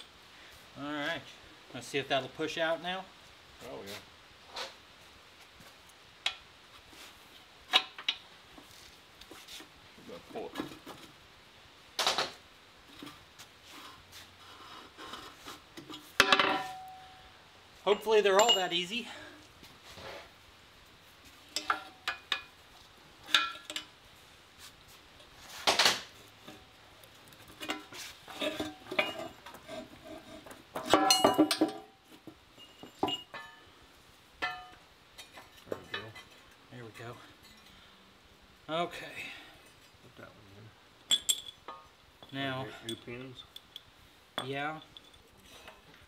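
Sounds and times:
scraping of steel parts: 27.4s - 31.9s
metal clinks: 41.1s - 45.3s.

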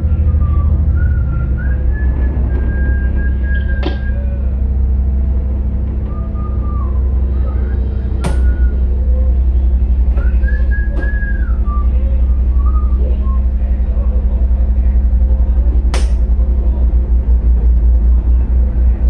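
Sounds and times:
diesel engine drone: 0.0s - 19.0s
short whistled notes: 0.2s - 4.3s, 6.0s - 9.2s, 10.1s - 13.4s.

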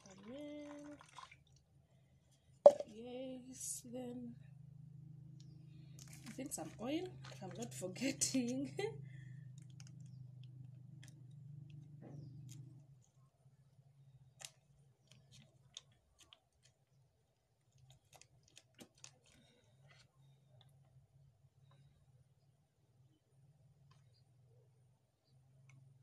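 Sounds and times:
foil sachet crinkling: 17.7s - 20.0s.

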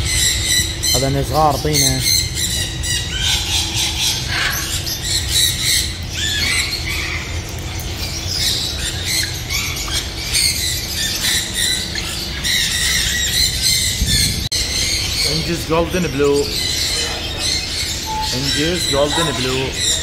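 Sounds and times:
birds squawking and chirping: 0.0s - 20.0s.

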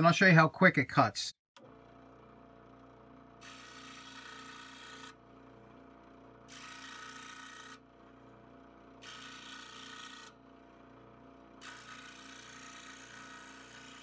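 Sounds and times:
scroll saw humming: 1.6s - 14.0s
saw blade cutting wood: 3.4s - 5.2s, 6.5s - 7.8s, 9.0s - 10.3s, 11.6s - 14.0s.

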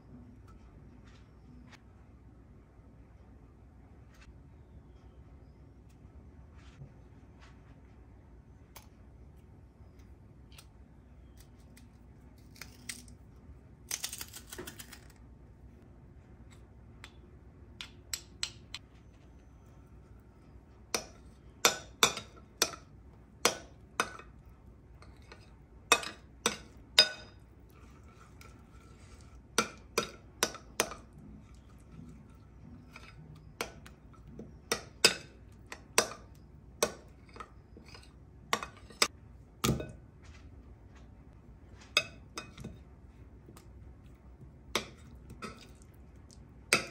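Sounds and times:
metal spoon clinking in a bowl: 25.0s - 27.4s.

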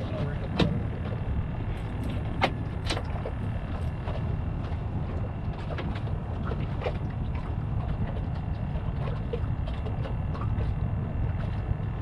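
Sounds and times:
low wind rumble on microphone: 0.0s - 12.0s
waves lapping against boat hull: 0.0s - 12.0s.

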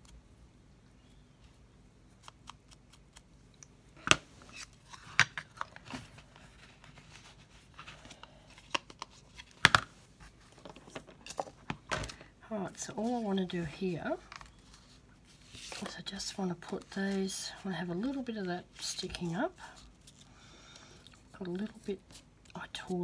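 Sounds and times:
paper rustle: 14.3s - 16.0s.

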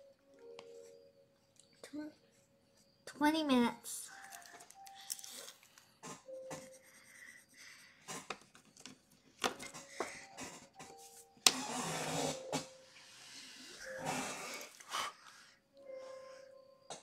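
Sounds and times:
pencil scratching on paper: 6.1s - 8.4s, 10.0s - 12.6s.

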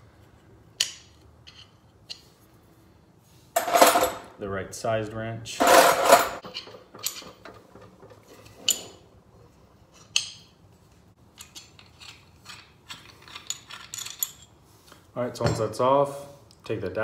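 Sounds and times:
wrench clinking on metal fitting: 11.3s - 14.6s.

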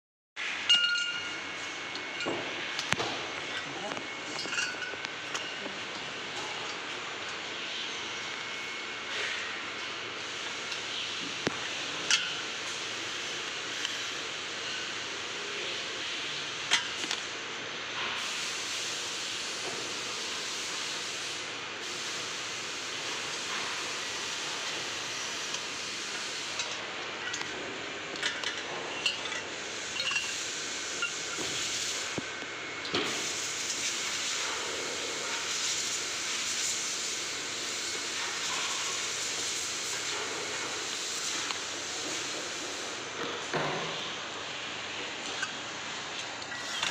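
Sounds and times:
steady hiss: 33.0s - 46.9s.

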